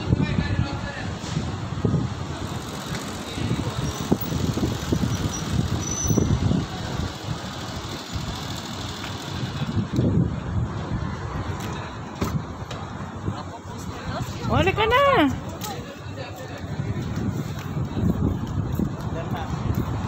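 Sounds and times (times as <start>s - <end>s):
street noise: 0.0s - 20.0s
vehicle engine running: 2.2s - 10.0s.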